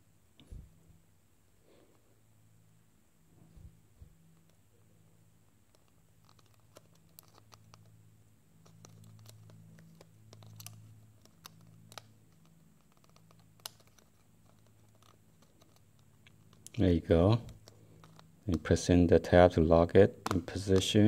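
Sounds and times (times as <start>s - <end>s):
faint low hum: 0.0s - 21.0s
fingertips clicking and scratching: 5.6s - 8.0s, 8.6s - 16.8s, 17.4s - 18.7s.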